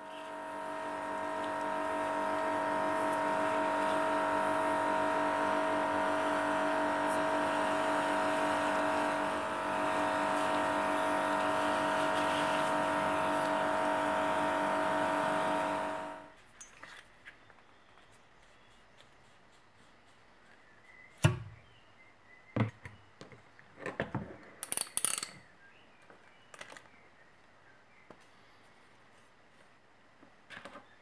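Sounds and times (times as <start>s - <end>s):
pressure washer motor whine: 0.0s - 16.3s.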